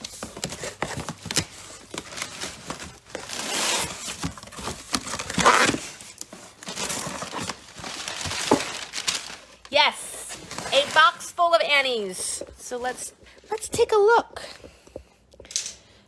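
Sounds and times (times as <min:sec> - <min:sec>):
cardboard and packaging rustling: 0:00.0 - 0:13.9
packing tape ripping: 0:00.4 - 0:09.4.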